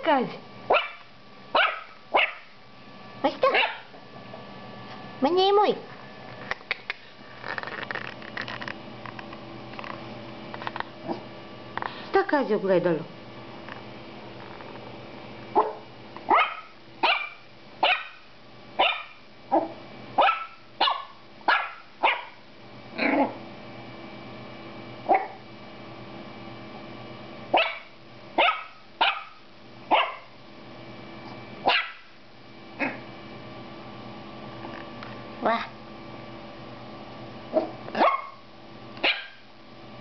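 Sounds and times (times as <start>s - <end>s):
puppy barking: 0.7s - 2.6s, 3.4s - 4.0s, 15.6s - 22.4s, 25.1s - 25.4s, 27.5s - 30.3s, 31.6s - 32.2s, 37.5s - 38.4s, 39.0s - 39.4s.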